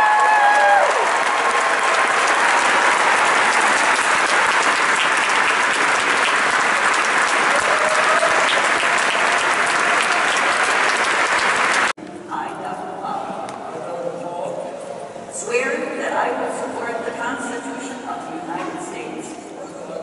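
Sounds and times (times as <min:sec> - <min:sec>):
large audience applauding: 0:00.0 - 0:12.0.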